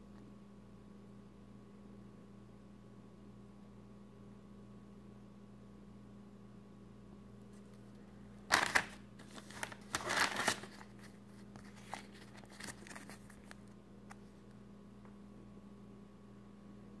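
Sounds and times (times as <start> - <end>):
faint electrical hum: 0.0 - 17.0
paper and plastic crinkling: 8.5 - 13.7.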